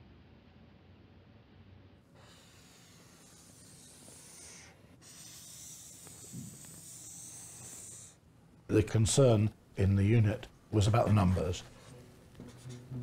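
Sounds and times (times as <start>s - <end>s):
marker drawing on whiteboard: 2.2s - 8.2s, 10.8s - 13.0s.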